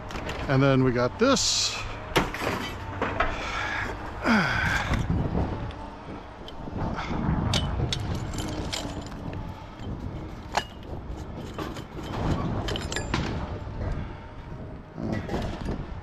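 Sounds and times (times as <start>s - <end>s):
low steady rumble: 0.0s - 16.0s
scrap metal clinking and knocking: 7.5s - 13.5s.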